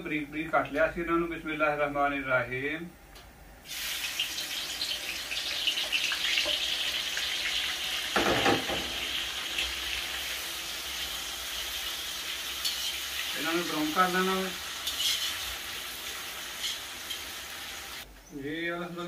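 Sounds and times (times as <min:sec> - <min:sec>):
onions sizzling in hot oil: 0:03.6 - 0:18.0
knock: 0:08.2 - 0:09.0.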